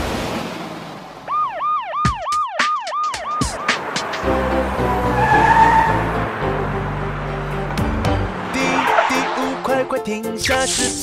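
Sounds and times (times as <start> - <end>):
cartoon siren wail: 1.3 - 3.7.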